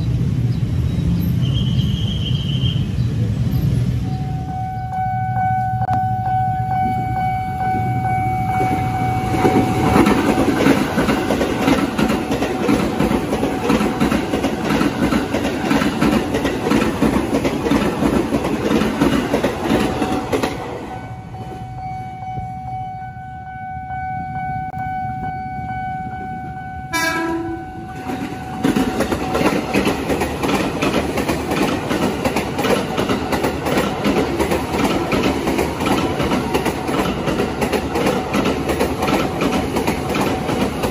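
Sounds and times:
train rumble and wheel clatter: 0.0 - 40.9
crossing warning bell ringing: 4.0 - 16.5, 18.4 - 30.5
train horn blast: 24.6 - 28.1.

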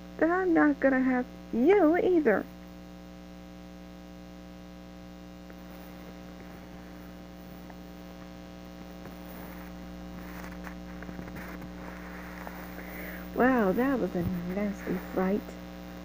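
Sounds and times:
steady electrical hum: 0.0 - 16.0
faint rustling and handling noise: 5.5 - 15.6.

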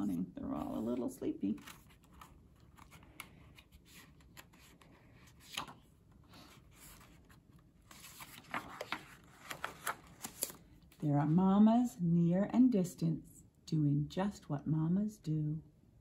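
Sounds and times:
paper page rustling: 0.0 - 11.0
paper crinkle: 0.4 - 10.8.

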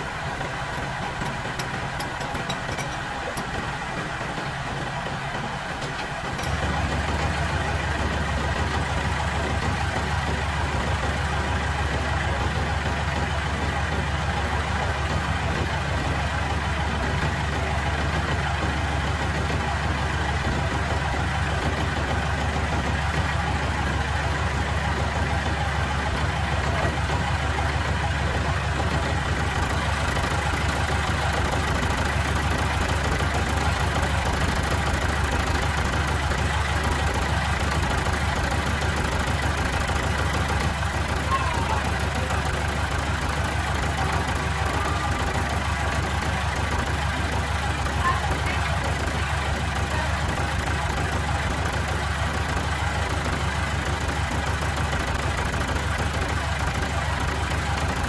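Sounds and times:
engine idling: 0.0 - 58.0.

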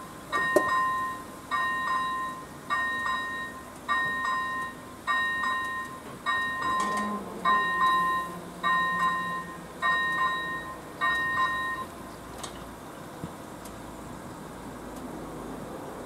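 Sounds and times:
level crossing warning bell: 0.0 - 12.1
barriers lowering hum: 0.0 - 14.4.

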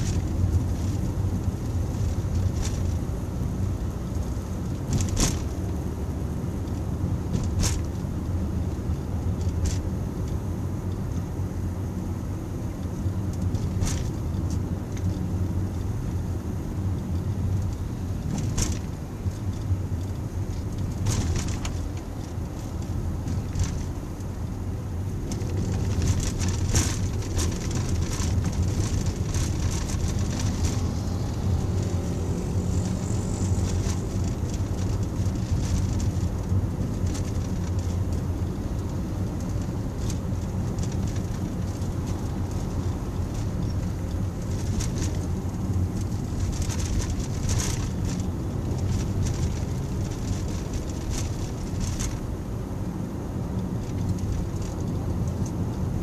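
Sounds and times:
car road and engine rumble: 0.0 - 56.0.

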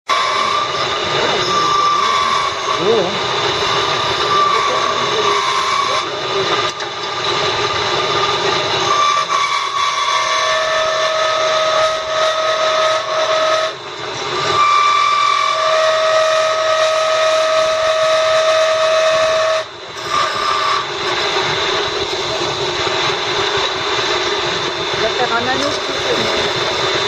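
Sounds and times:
chisel cutting wood: 0.1 - 7.4, 8.8 - 21.4
wood lathe whining hum: 0.1 - 27.0.

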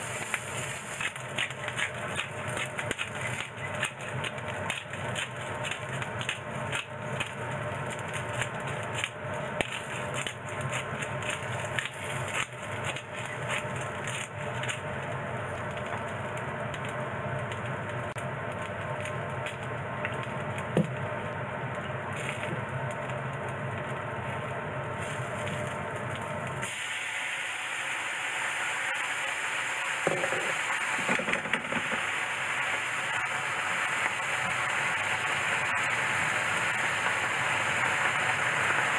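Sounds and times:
liquid hissing in hot pan: 0.0 - 15.6, 24.9 - 38.9
vegetables sizzling in frying pan: 0.0 - 38.9.

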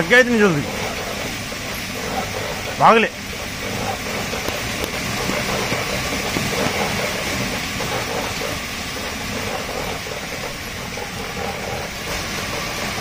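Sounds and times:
treadmill belt running: 0.0 - 13.0.

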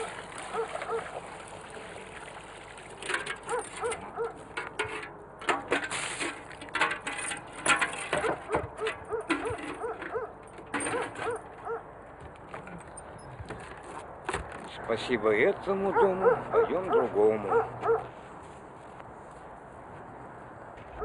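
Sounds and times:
metal pail clanking against wood: 0.0 - 1.9, 2.8 - 11.8.

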